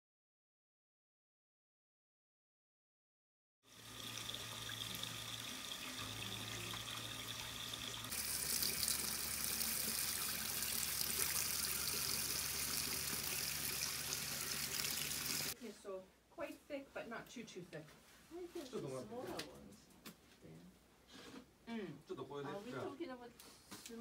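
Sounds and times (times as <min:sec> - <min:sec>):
water running into tanks: 0:03.7 - 0:15.6.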